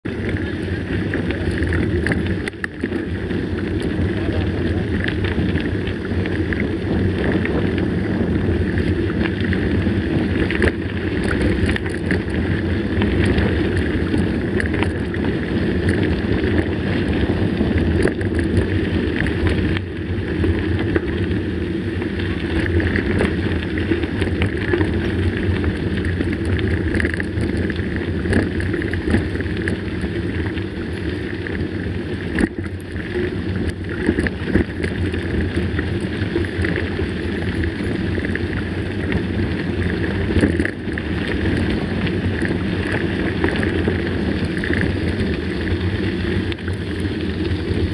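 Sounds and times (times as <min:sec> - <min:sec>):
bike rattles: 0:00.0 - 0:47.9
bike tyres rumbling on dirt: 0:00.0 - 0:47.9
wind noise on microphone: 0:00.0 - 0:47.9.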